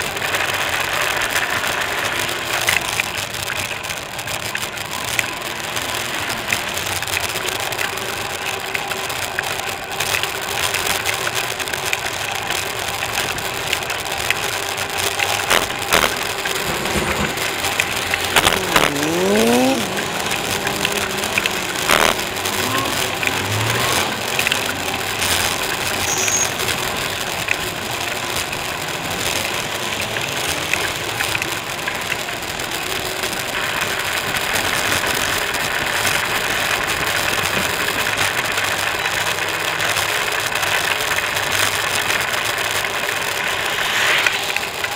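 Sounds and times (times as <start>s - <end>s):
bicycle rattling over paving: 0.0s - 44.9s
bicycle tyres rolling: 0.0s - 44.9s
passing traffic: 0.0s - 44.9s
vehicle engine revving: 14.3s - 44.9s.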